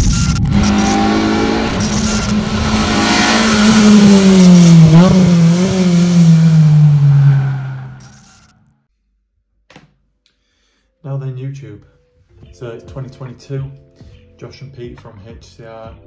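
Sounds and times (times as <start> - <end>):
car engine at high revs: 0.0 - 8.4
rushing noise: 0.0 - 8.4.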